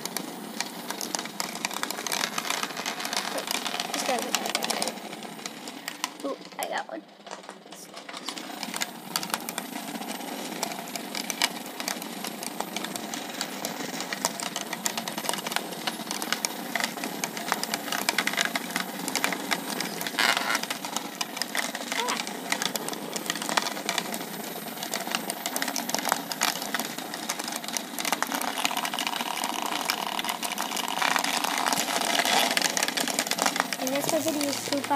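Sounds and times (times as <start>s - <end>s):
vibrating robots buzzing: 33.8s - 34.9s.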